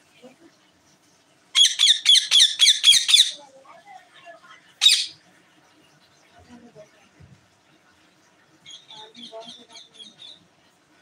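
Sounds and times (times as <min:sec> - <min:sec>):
parakeet squawking: 0:01.6 - 0:03.5, 0:04.8 - 0:05.2.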